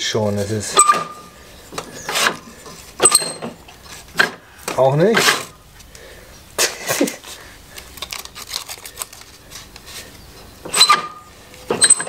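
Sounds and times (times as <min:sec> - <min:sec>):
paper rustling and scraping: 0:03.7 - 0:04.2, 0:07.0 - 0:10.3.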